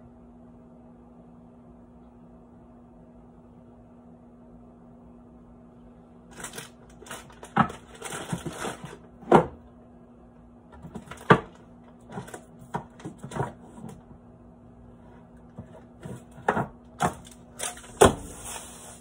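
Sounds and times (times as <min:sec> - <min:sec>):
packaging rustling: 0:06.3 - 0:09.1, 0:17.0 - 0:19.0
items clacking in a cabinet: 0:06.3 - 0:09.6, 0:10.8 - 0:14.1, 0:15.5 - 0:18.7.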